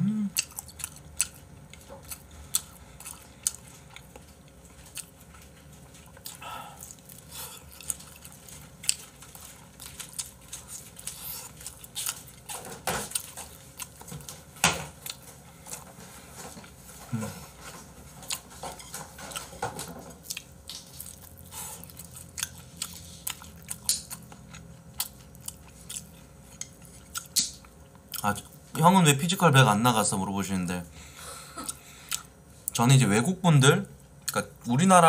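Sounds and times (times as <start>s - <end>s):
chewing food: 0.3s - 28.8s, 31.6s - 32.8s.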